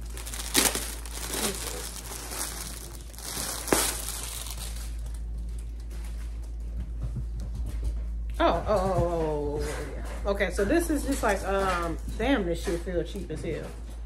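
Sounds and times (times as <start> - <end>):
sharp plastic crackles: 0.0 - 6.1
plastic crinkling and rustling: 0.0 - 6.3.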